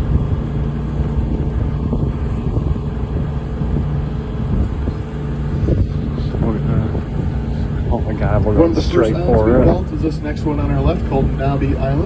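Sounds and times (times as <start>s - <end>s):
boat engine humming: 0.0s - 12.0s.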